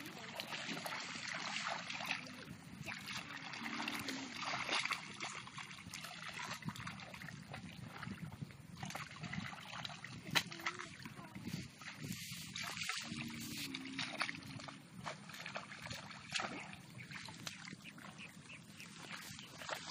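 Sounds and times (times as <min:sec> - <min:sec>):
muddy water splashing: 0:00.0 - 0:19.9.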